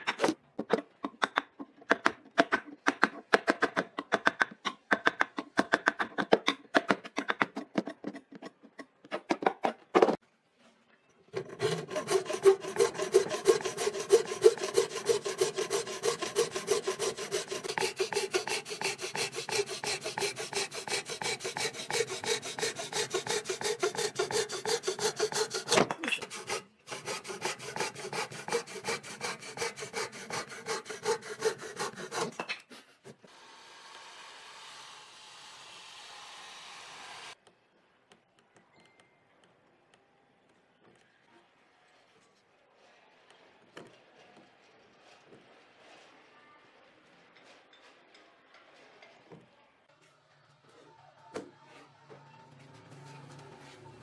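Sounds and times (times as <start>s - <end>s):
hand tool scraping wood: 11.4s - 33.2s.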